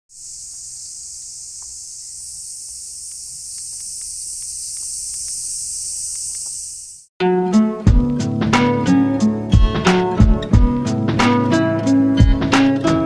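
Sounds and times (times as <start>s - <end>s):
cicadas chorus: 0.1s - 7.1s.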